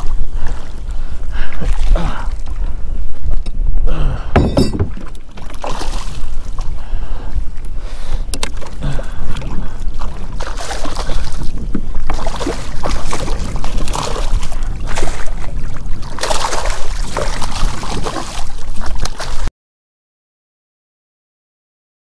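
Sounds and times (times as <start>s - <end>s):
wind rumble on microphone: 0.0s - 19.5s
fish thrashing and splashing: 4.7s - 6.5s, 8.4s - 19.5s.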